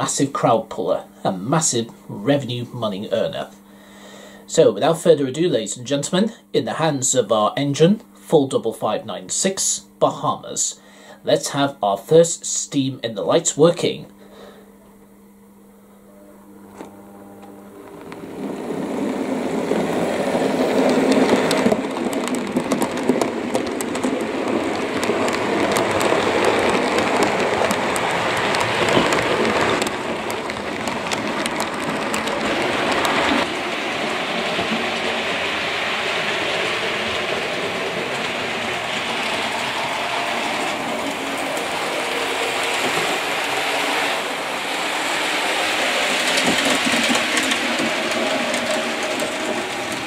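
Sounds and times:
faint steady hum: 0:00.0 - 0:46.4
model train rattling on track: 0:17.8 - 0:50.0.

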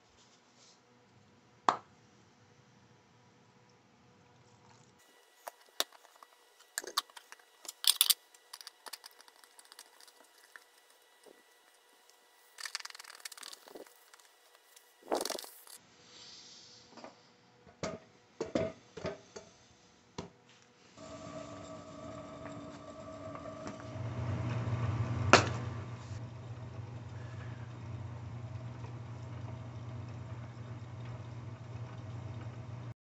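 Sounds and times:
steady hum with tones: 0:05.0 - 0:16.1, 0:20.8 - 0:33.0
scraping and rustling: 0:05.3 - 0:15.8
loud scraping rush: 0:21.0 - 0:26.2.

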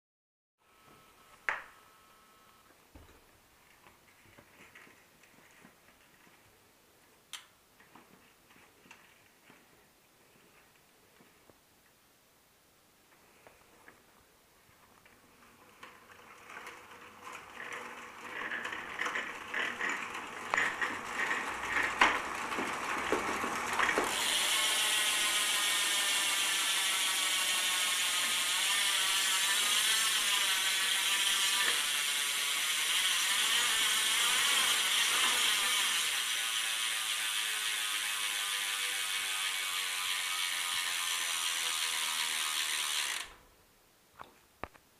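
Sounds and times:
bicycle hub ratcheting buzz: 0:15.4 - 0:43.4.

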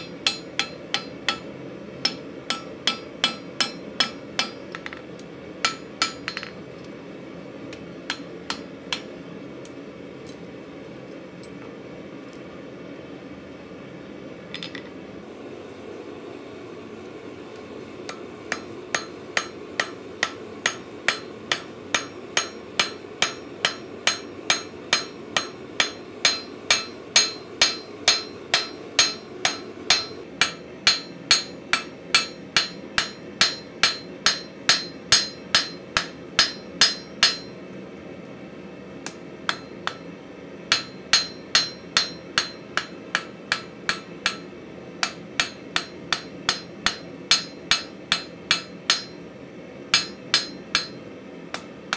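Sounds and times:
hammer striking hot steel on anvil: 0:00.0 - 0:06.6, 0:07.7 - 0:09.2, 0:18.0 - 0:37.6, 0:39.0 - 0:49.3, 0:49.9 - 0:51.9.

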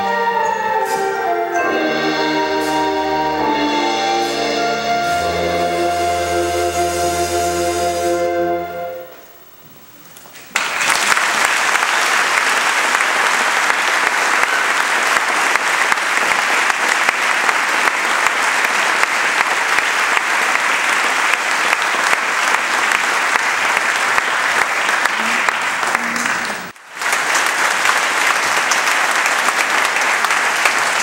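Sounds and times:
flute ensemble held chord: 0:00.0 - 0:09.3
audience applause: 0:10.5 - 0:31.0.

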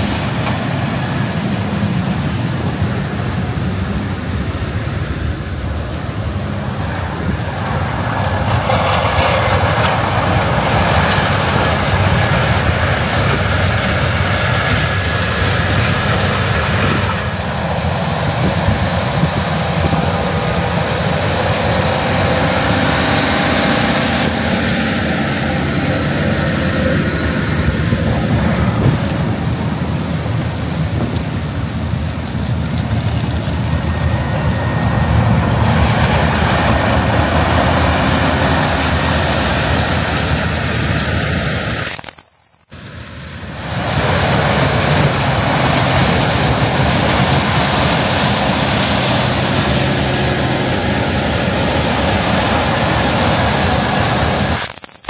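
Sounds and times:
diesel engine and machinery noise: 0:00.0 - 0:55.0.

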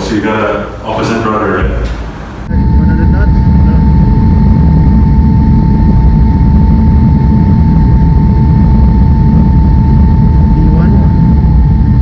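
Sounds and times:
high whine: 0:00.0 - 0:12.0
jet engine rumble: 0:00.0 - 0:12.0.

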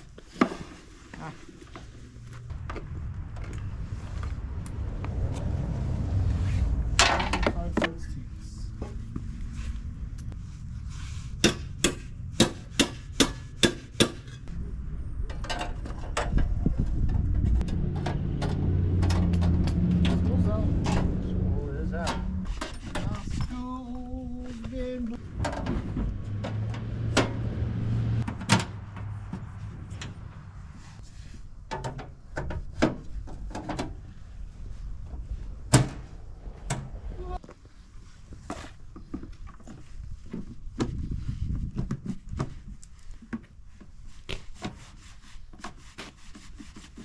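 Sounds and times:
low rumble: 0:01.3 - 0:31.7, 0:32.9 - 0:38.4.

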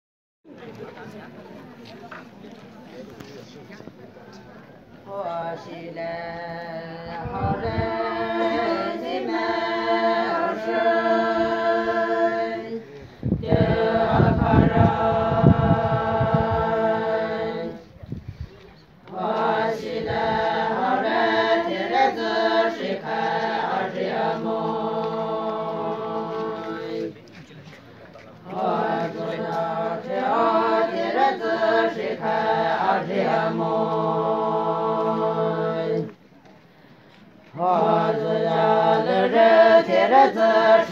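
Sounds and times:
women singing a cappella: 0:05.0 - 0:17.9, 0:19.0 - 0:27.2, 0:28.5 - 0:36.2, 0:37.5 - 0:40.9.

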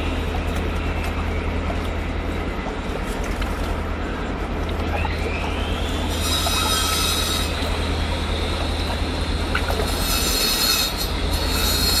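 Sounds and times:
high thin squealing tone: 0:06.0 - 0:07.6.

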